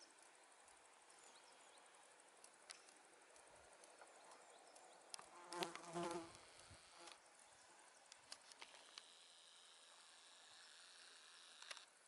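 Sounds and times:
light ticks: 0.0s - 6.4s
flying insect buzzing: 5.3s - 7.2s.

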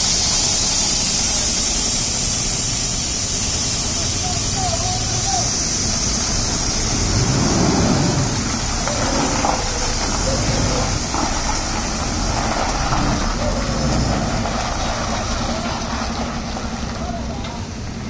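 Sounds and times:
lorry engine rumble: 0.0s - 18.0s
indistinct voices: 3.8s - 18.0s.

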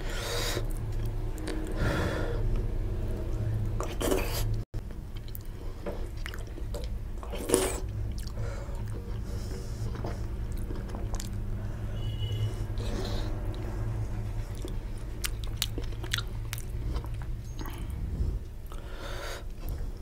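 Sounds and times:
steady low hum: 0.0s - 20.0s
mouth chewing: 3.8s - 11.5s, 14.4s - 18.0s.

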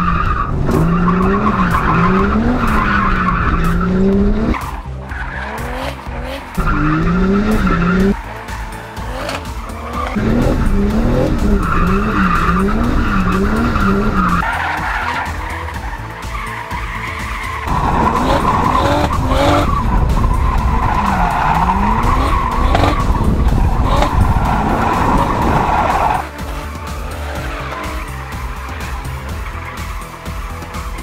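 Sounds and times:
car engine revving: 0.0s - 31.0s
tyres squealing: 0.0s - 31.0s.

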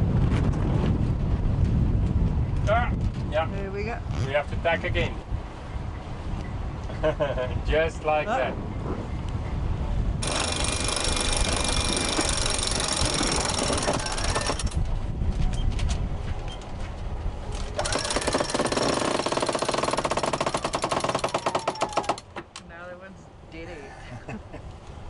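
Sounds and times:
winch grinding: 10.2s - 14.8s, 17.6s - 22.4s.

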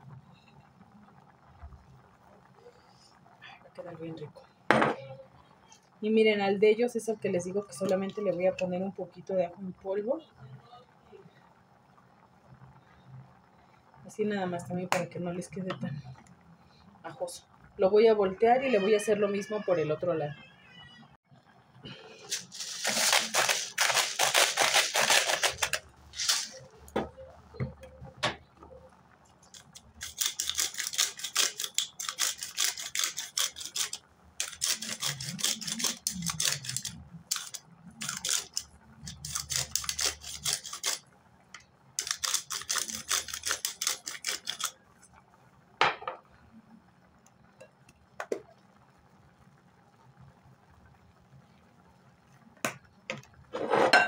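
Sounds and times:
pepper grinder clicking: 22.3s - 26.6s, 29.5s - 41.0s, 42.0s - 44.7s.

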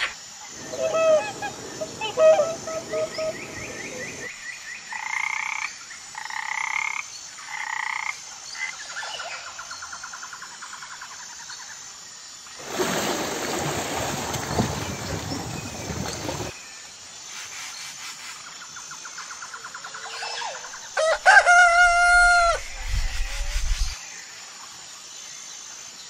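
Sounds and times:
frogs croaking and trilling: 0.0s - 12.4s, 18.2s - 24.4s.

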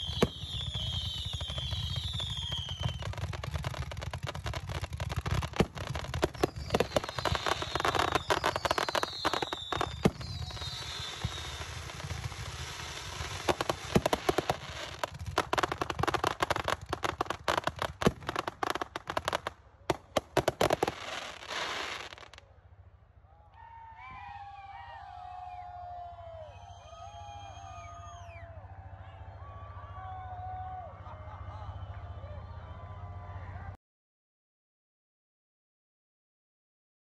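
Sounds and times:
fireworks crackling and popping: 0.0s - 22.4s.

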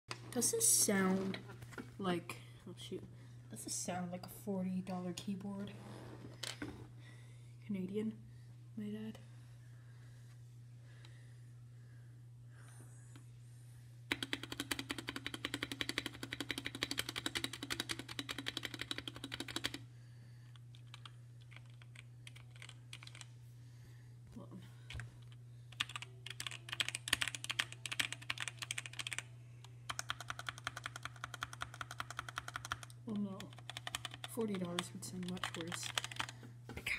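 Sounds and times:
fast typing on mechanical keyboard: 14.1s - 19.8s, 20.7s - 23.3s, 25.8s - 29.3s, 29.9s - 36.3s.

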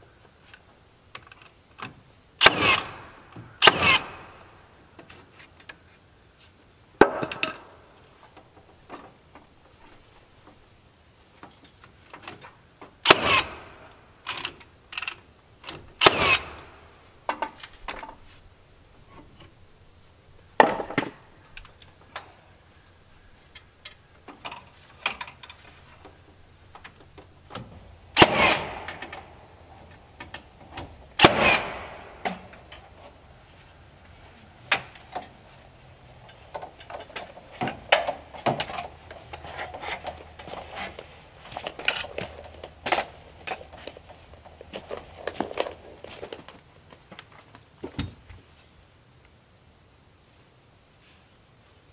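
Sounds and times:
nail gun shots: 2.4s - 4.4s, 13.0s - 13.8s, 16.0s - 16.8s, 28.2s - 29.1s, 31.2s - 32.4s.

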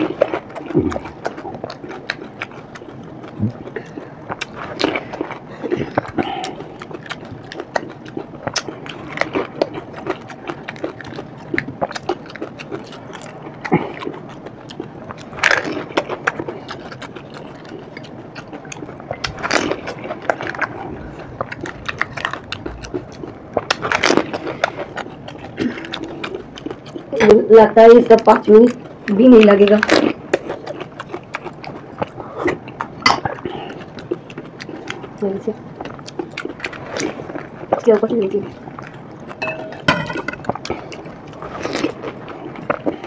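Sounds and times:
crunching fried snacks: 0.0s - 27.2s
wet chewing: 0.0s - 43.0s.

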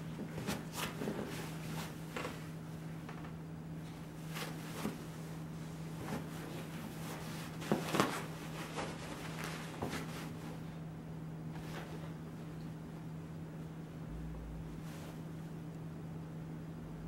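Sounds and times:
puppy rustling on dog bed: 0.1s - 2.6s, 4.0s - 10.8s, 11.5s - 12.5s
low hum: 10.4s - 17.0s.

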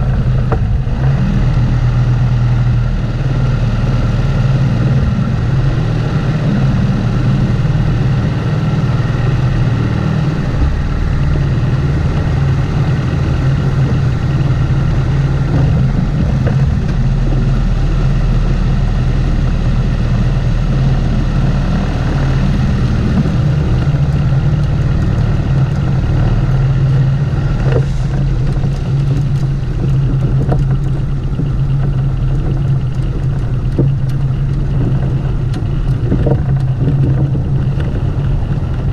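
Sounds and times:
outboard motor running: 0.0s - 38.9s.

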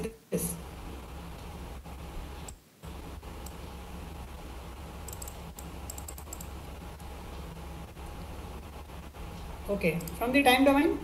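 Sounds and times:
steady low hum: 0.0s - 11.0s
computer keyboard clicking: 5.0s - 7.1s.

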